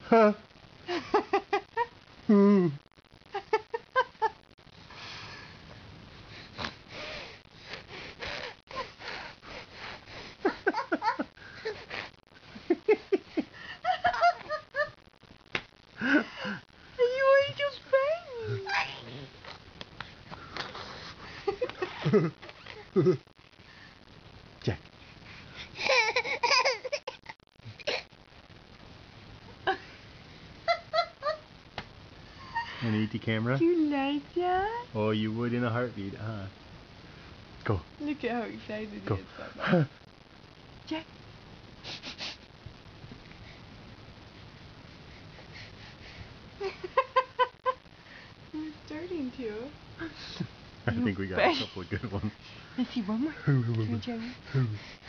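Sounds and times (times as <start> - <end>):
baby sniffing and huffing: 6.4 - 10.4, 41.8 - 42.5
baby giggling: 25.8 - 27.2.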